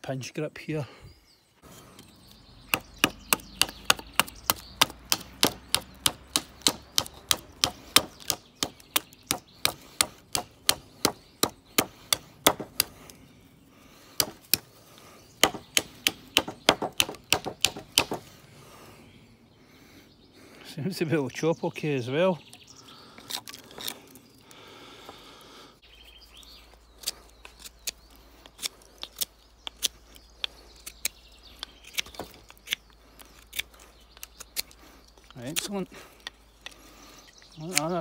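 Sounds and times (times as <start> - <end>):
knife chopping into wood: 2.7 - 13.0, 14.2 - 14.7, 15.4 - 18.2, 31.9 - 32.8.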